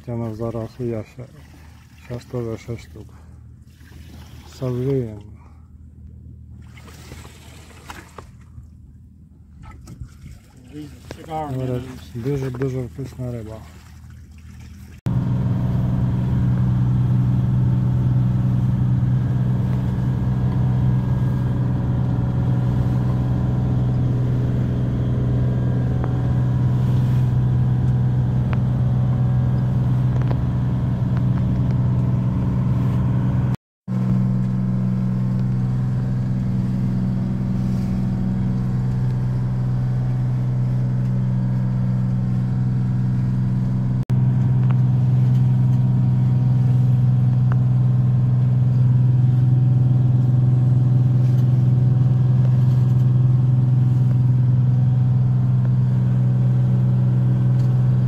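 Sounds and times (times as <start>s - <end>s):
boat engine droning: 15.1s - 58.0s.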